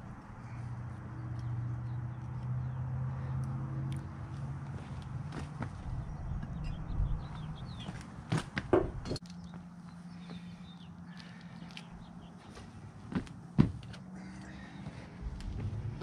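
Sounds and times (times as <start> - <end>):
steady low hum: 8.8 - 16.0.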